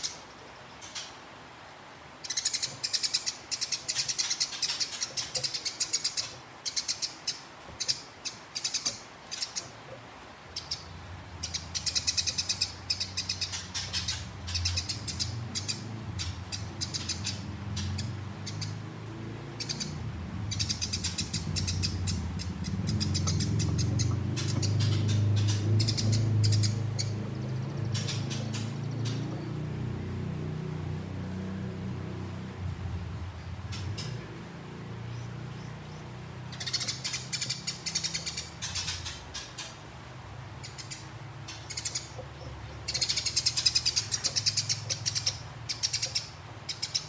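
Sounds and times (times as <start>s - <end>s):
sparrow chirping: 2.2s - 9.8s, 10.5s - 30.7s, 32.8s - 34.4s, 35.1s - 39.9s, 40.6s - 47.0s.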